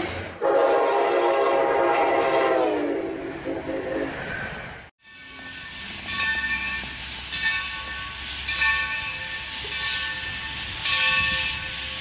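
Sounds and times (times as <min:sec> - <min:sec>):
train whistle blasts: 0:00.4 - 0:04.3.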